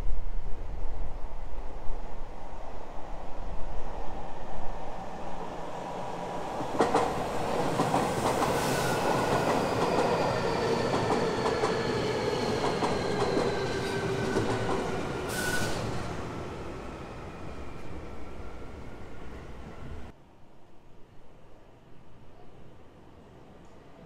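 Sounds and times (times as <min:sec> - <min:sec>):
electric train passing: 0:01.2 - 0:20.1.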